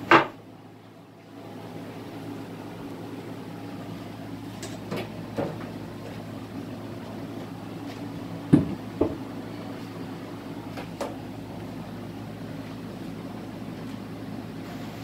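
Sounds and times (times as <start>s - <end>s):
steady low hum: 0.0s - 15.0s
wooden boards knocking: 8.5s - 9.2s.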